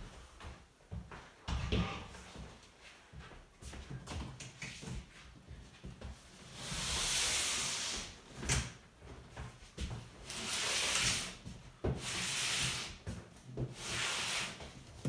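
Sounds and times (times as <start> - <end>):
cardboard box scraping on floor: 13.7 - 14.8.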